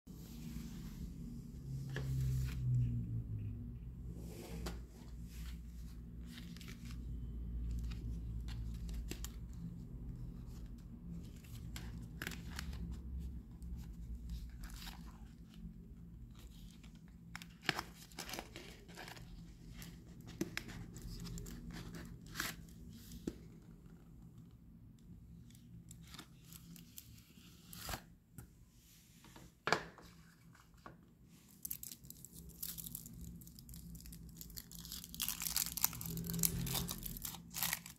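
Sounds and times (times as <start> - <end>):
foil wrapper crinkling: 31.6 - 37.9.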